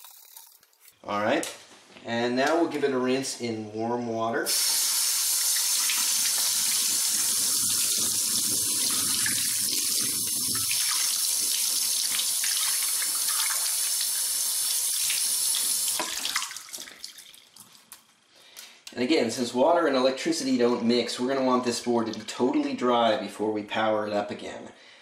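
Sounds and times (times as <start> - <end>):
kitchen faucet running: 4.5 - 17.4
water splashing into sink: 4.5 - 17.9, 22.0 - 22.4.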